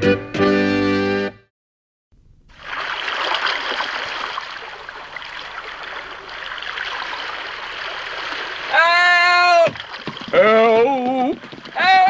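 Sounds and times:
sea water lapping: 0:02.6 - 0:12.0.

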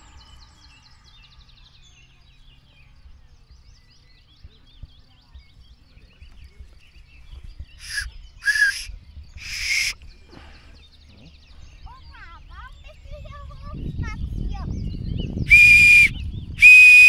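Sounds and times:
birds chirping: 0:00.0 - 0:17.0
shrill whistle blasts: 0:07.8 - 0:10.0, 0:15.5 - 0:17.0.

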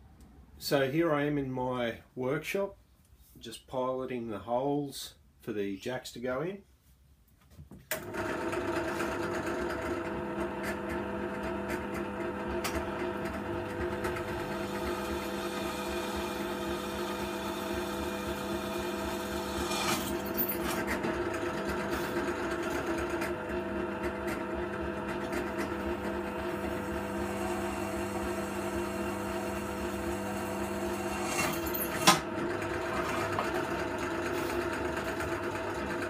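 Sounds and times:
drill press motor running: 0:07.9 - 0:36.0.

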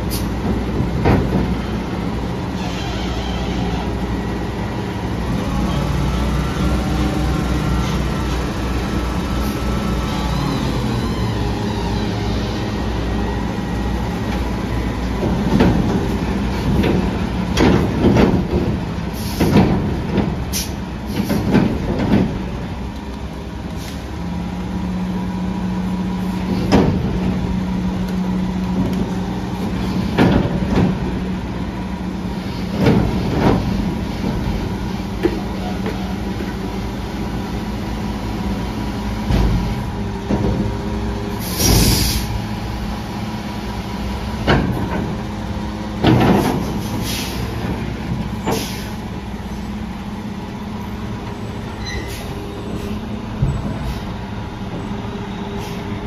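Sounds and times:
garbage truck engine drone: 0:00.0 - 0:56.0
metal bangs and clanks: 0:15.2 - 0:22.5, 0:46.0 - 0:48.9.

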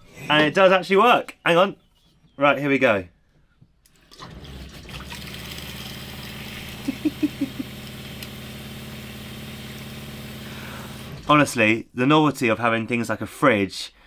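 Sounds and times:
water pump humming: 0:04.0 - 0:11.6
water pouring into saucepan: 0:04.1 - 0:09.8.

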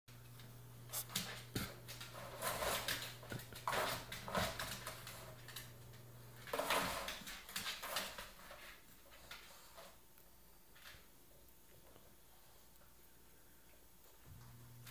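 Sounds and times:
dogs scuffling around plastic basket: 0:00.9 - 0:10.0.

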